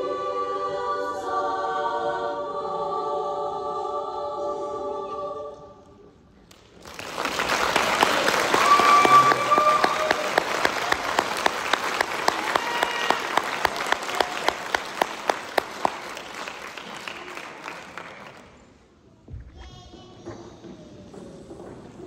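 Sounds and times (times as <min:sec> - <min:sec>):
audience applause: 0:06.6 - 0:18.7.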